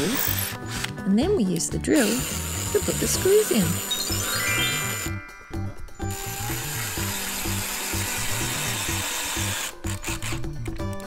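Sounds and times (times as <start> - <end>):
cordless drill driving a screw: 0.0 - 1.0, 2.0 - 4.2, 6.1 - 10.8
background music with steady beat: 0.0 - 11.0.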